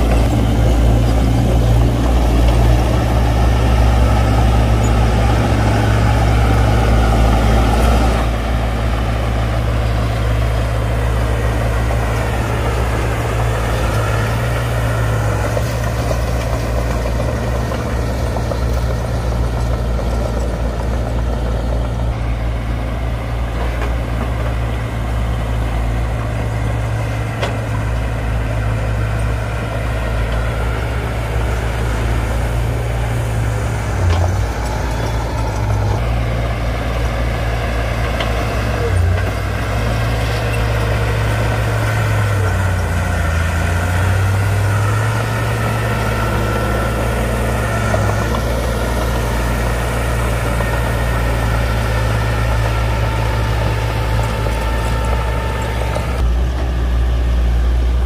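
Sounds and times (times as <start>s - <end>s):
bulldozer diesel engine running: 0.0s - 58.0s.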